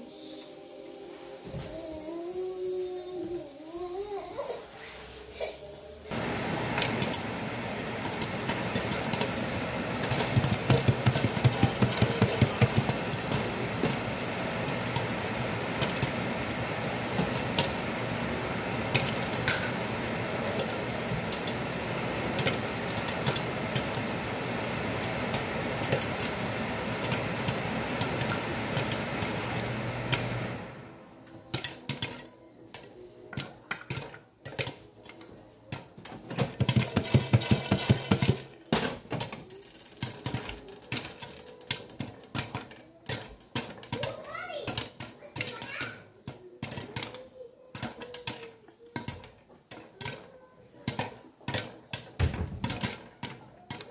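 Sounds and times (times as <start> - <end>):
steady hiss: 0.0 - 31.4
popcorn popping in a pan: 6.1 - 30.9, 31.5 - 53.9.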